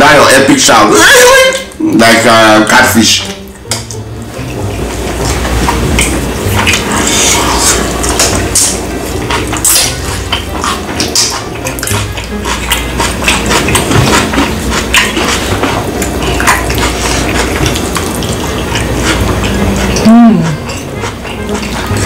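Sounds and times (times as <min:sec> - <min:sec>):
wet chewing and lip smacking: 0:05.2 - 0:22.0.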